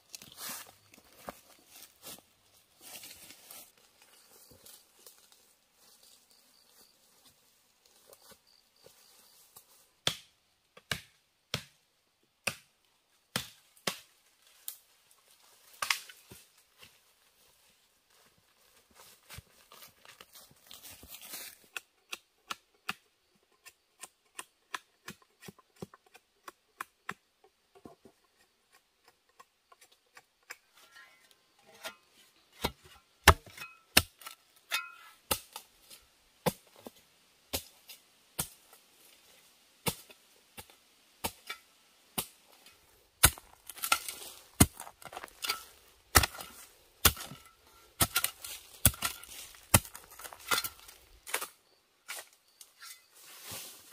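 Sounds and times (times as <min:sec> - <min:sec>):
spade chopping into earth: 0:10.0 - 0:11.8, 0:13.3 - 0:14.1, 0:32.6 - 0:35.6, 0:39.8 - 0:42.4, 0:43.2 - 0:51.5.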